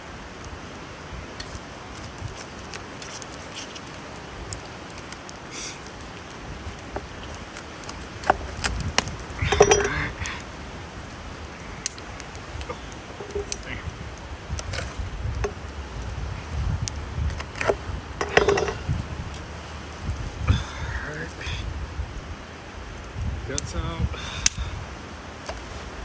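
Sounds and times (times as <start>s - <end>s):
steady hiss: 0.0s - 26.0s
light clicks and clinks: 9.4s - 10.4s, 13.2s - 13.7s, 17.5s - 19.0s.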